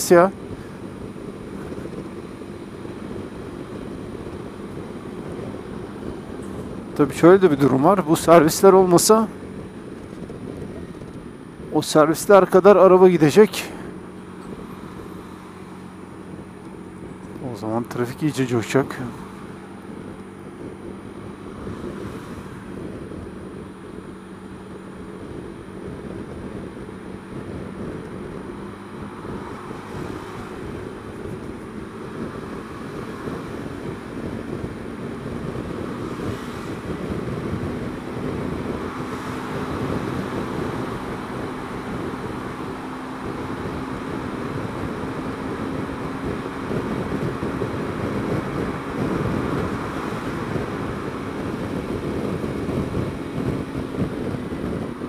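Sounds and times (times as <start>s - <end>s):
wind noise on microphone: 0.0s - 11.8s, 18.8s - 55.0s
road noise: 0.0s - 55.0s
scooter engine running: 22.7s - 55.0s.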